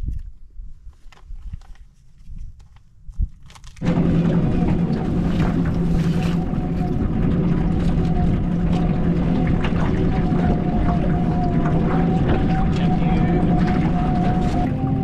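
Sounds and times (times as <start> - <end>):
aluminium foil crinkling: 0.9 - 3.8
outboard motor running: 3.8 - 15.0.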